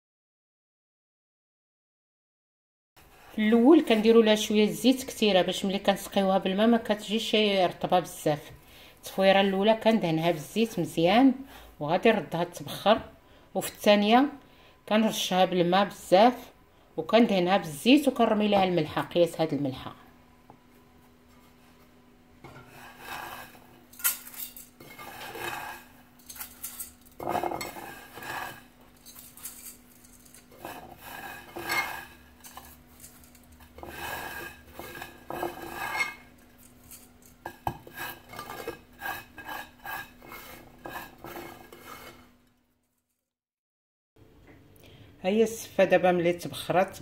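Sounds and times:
light clinks against metal: 23.9 - 24.8, 26.2 - 27.2, 29.0 - 30.5.

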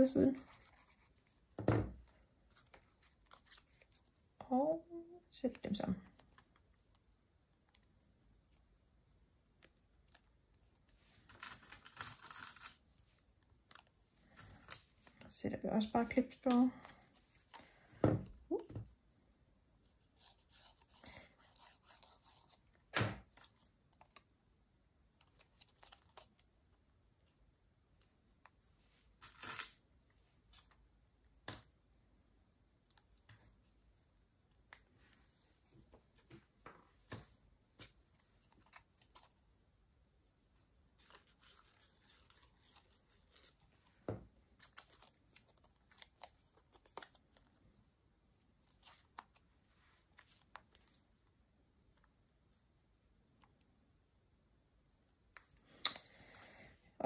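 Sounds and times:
paper rustling and scraping: 0.3 - 1.4.

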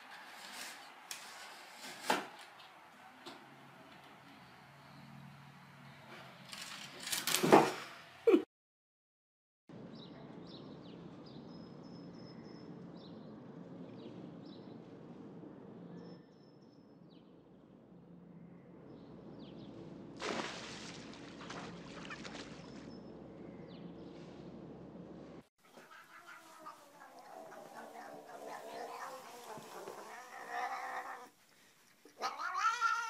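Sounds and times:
cat splashing and scrambling: 20.2 - 22.9, 25.6 - 31.2
splash in swimming pool: 20.2 - 22.9.

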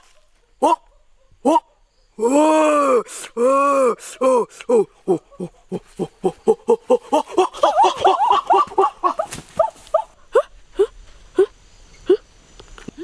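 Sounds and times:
person making short voiced cries: 0.6 - 9.7.

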